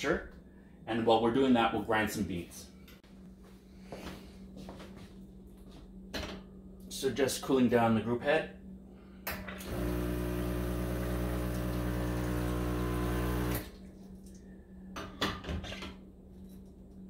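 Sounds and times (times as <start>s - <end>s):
pump buzzing: 9.6s - 13.8s.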